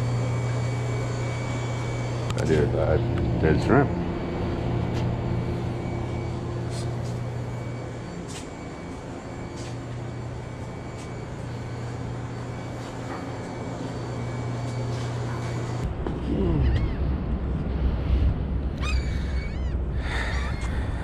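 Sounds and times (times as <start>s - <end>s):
electrical machine hum: 0.0s - 21.0s.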